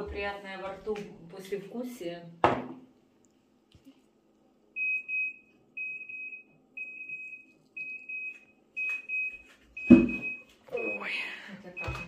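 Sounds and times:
electronic alarm beeping: 0:04.8 - 0:11.1, 0:11.8 - 0:12.0.

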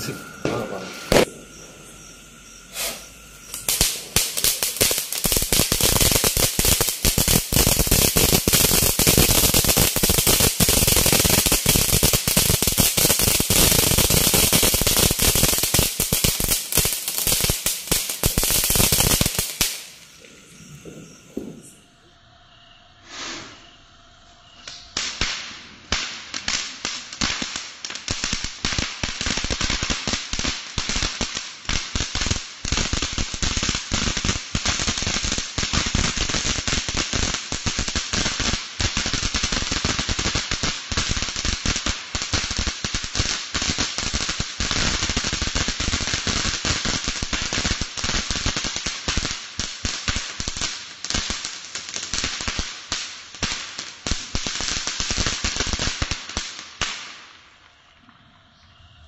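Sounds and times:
firework crackling: 0:00.0 - 0:22.0, 0:23.0 - 0:23.7, 0:24.5 - 0:58.1.

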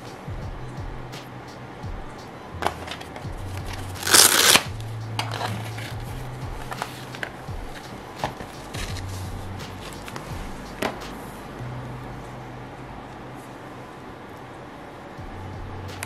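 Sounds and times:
velcro ripping apart: 0:03.9 - 0:04.7.

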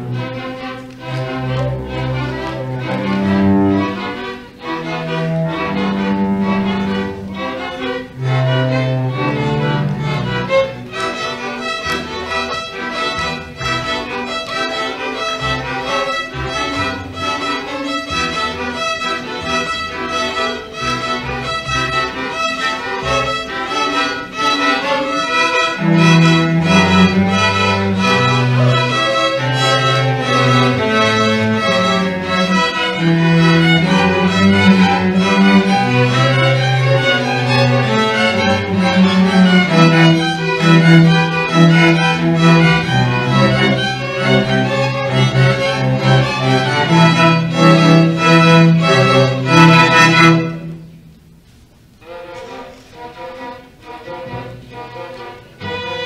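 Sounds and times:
string orchestra playing: 0:00.0 - 0:56.0.

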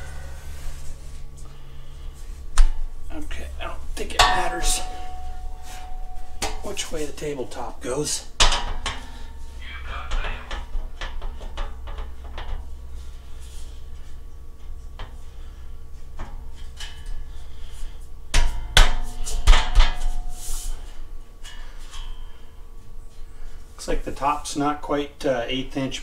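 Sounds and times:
metal clanks: 0:04.0 - 0:07.3, 0:08.4 - 0:09.5.

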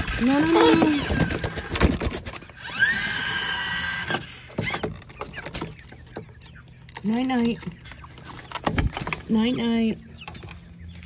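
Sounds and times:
small electric motor whine: 0:02.6 - 0:04.8.

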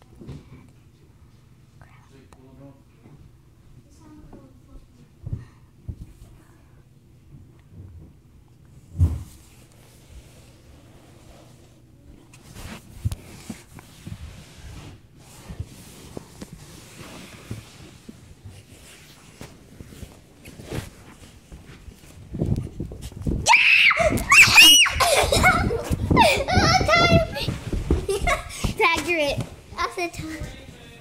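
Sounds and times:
children shrieking: 0:23.5 - 0:25.5
heavy thumps: 0:25.4 - 0:30.5.

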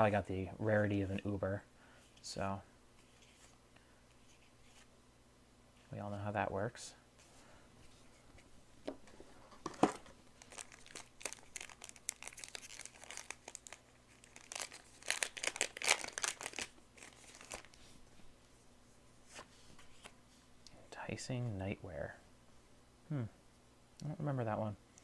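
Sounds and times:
foil pack tearing and crinkling: 0:10.4 - 0:17.8.

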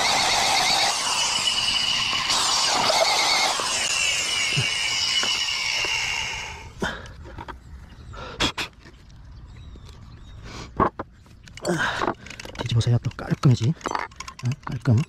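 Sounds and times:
drill hole saw cutting wood: 0:00.0 - 0:06.8.

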